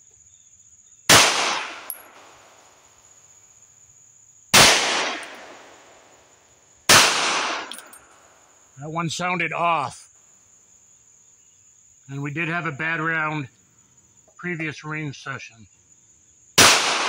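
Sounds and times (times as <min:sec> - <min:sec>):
high insect drone: 0:00.0 - 0:16.6
pistol shots with echo: 0:01.1 - 0:02.8, 0:04.5 - 0:06.2, 0:06.9 - 0:08.2, 0:16.6 - 0:17.0.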